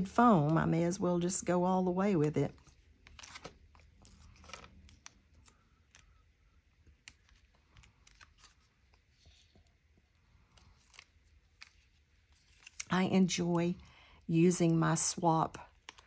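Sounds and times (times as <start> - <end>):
paper handling: 2.1 - 6.1, 6.8 - 13.0.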